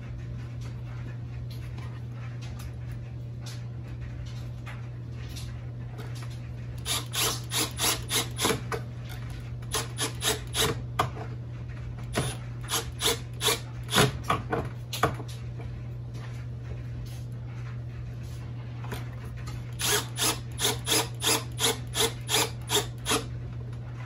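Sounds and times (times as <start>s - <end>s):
cordless drill driving screw: 6.8s - 8.5s, 19.8s - 23.2s.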